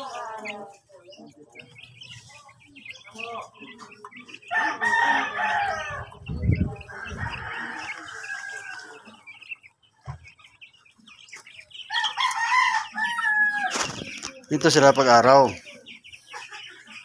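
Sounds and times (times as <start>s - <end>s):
rooster crowing: 4.5s - 6.1s, 6.9s - 9.0s, 11.9s - 13.7s.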